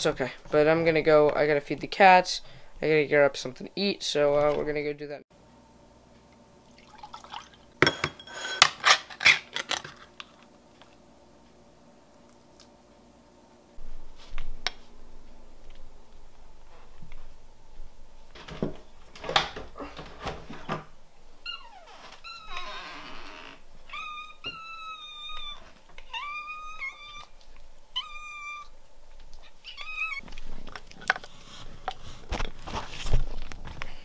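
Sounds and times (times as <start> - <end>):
food bowls clinking and knocking: 7.8 - 8.8
cat meowing: 23.9 - 27.3, 27.9 - 28.7, 29.6 - 30.2.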